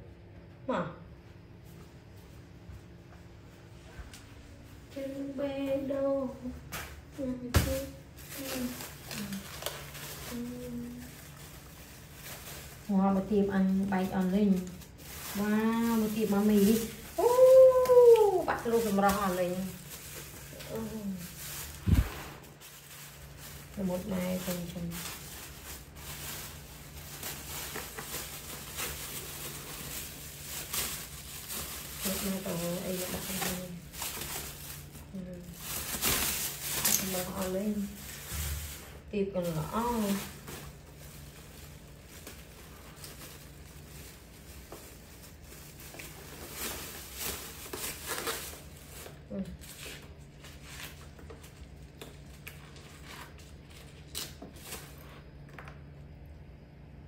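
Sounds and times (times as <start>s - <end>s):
low steady hum: 0.0s - 57.0s
faint rustling and handling: 1.5s - 55.9s
plastic crinkling and taps: 27.2s - 32.1s.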